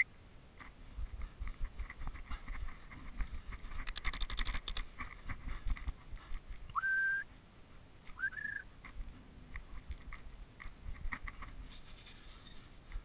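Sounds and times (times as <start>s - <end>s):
whistles sliding up: 6.8s - 7.3s, 8.2s - 8.6s.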